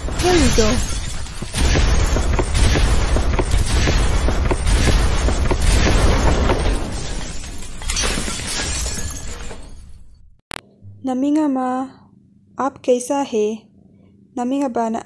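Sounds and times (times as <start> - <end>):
glass shattering: 0.0 - 10.3.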